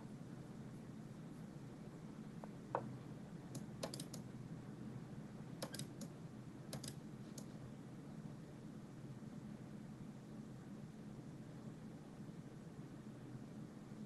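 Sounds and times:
faint computer mouse clicks: 0:03.5 - 0:04.2, 0:05.6 - 0:06.1, 0:06.7 - 0:07.5.

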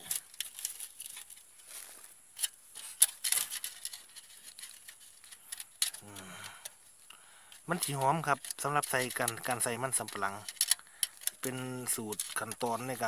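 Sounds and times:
metallic clicks of cage trap: 0:02.4 - 0:06.8, 0:07.5 - 0:13.0.

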